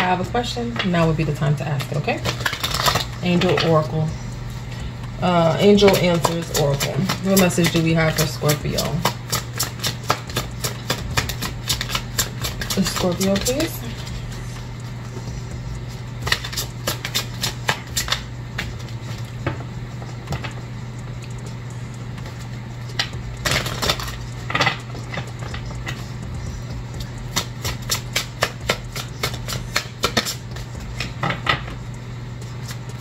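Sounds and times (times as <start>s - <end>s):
steady low hum: 0.0s - 33.0s
cards being shuffled: 2.2s - 3.7s, 5.8s - 15.0s, 15.9s - 20.6s, 22.2s - 31.5s.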